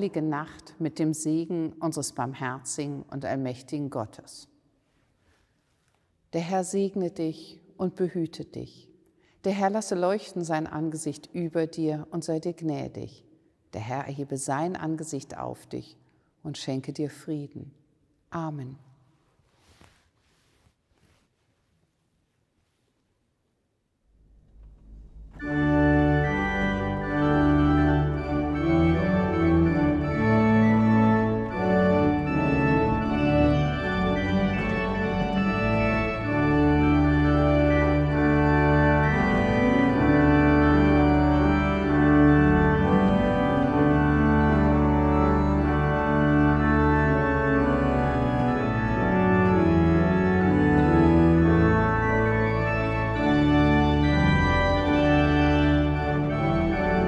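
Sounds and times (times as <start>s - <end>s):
pipe organ playing chords: 25.0s - 57.0s.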